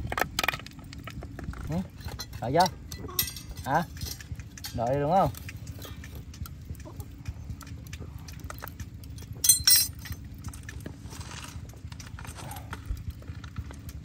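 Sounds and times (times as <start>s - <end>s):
steady low rumble: 0.0s - 14.0s
knife and utensils clinking: 2.0s - 4.9s, 9.4s - 10.2s
sharp metallic clink: 2.0s - 4.9s, 9.4s - 10.2s.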